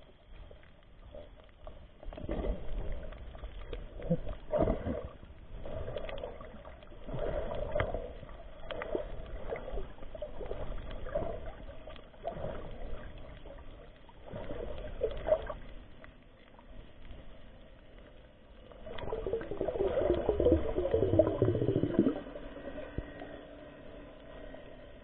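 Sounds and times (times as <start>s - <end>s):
muffled underwater sloshing: 0.0s - 25.0s.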